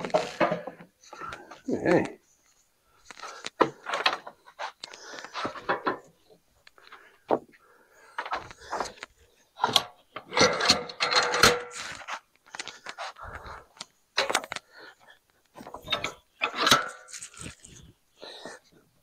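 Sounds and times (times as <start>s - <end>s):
wooden lumber knocking and scraping: 0.0s - 1.6s, 7.3s - 7.6s.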